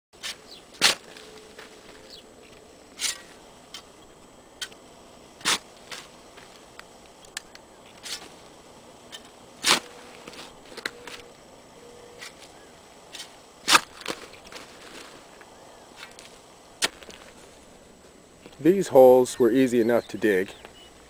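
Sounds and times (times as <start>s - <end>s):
shovel striking dry dirt: 0.2s - 2.2s, 3.0s - 3.9s, 5.4s - 6.6s, 7.3s - 8.4s, 9.1s - 11.3s, 13.1s - 15.2s, 16.0s - 17.4s
dirt clicks and scrapes: 0.2s - 11.3s, 12.1s - 19.3s.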